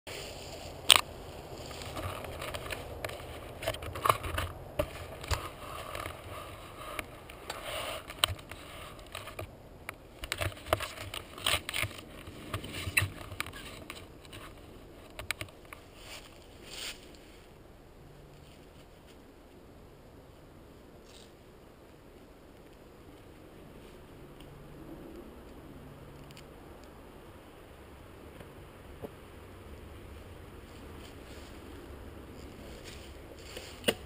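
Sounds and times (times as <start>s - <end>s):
rustling in dry leaves: 0.1s - 24.9s, 29.3s - 34.0s
camera handling knocks and scrapes: 1.9s - 9.5s.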